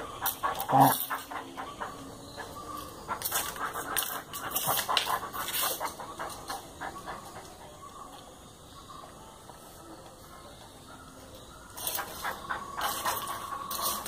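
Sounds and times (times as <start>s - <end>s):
dog panting and snuffling: 0.2s - 7.8s, 12.0s - 14.0s.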